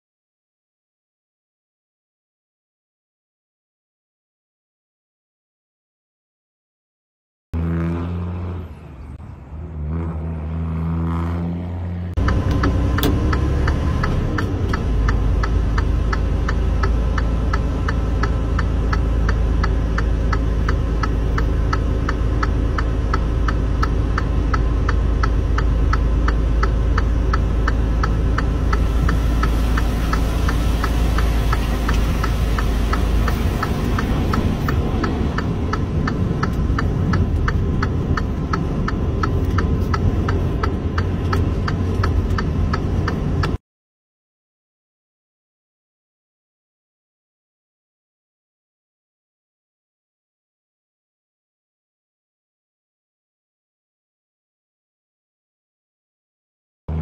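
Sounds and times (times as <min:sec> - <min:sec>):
deep engine rumble: 0:07.6 - 0:43.6
rapid even ticking: 0:12.2 - 0:43.6.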